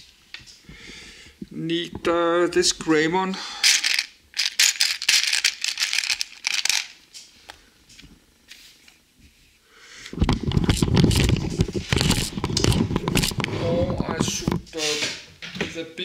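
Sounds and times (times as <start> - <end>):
plastic bricks clicking and rattling: 3.6 - 7.0, 10.3 - 14.6
camera handling rumble: 10.1 - 14.7.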